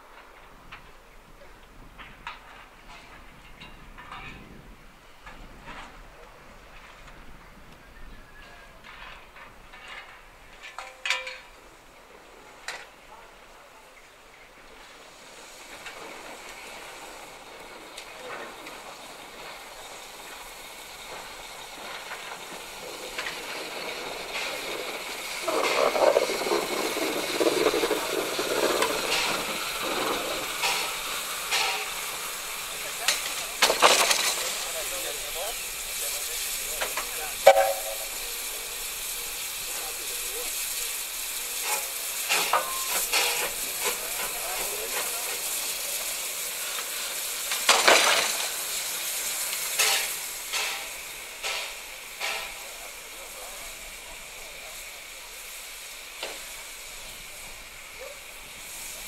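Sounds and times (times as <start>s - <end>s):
steam hissing: 11.5s - 59.0s
locomotive running gear rattling: 14.8s - 53.6s.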